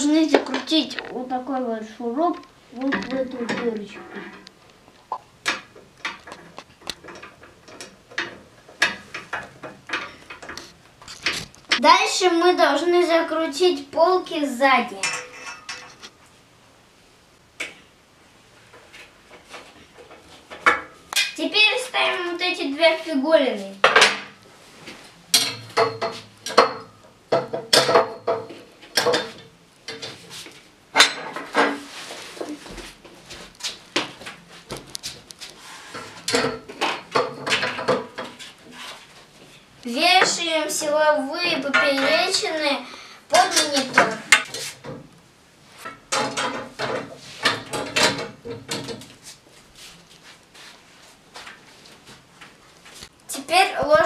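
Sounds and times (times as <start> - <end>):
metal frame pieces clanking: 45.8 - 49.1.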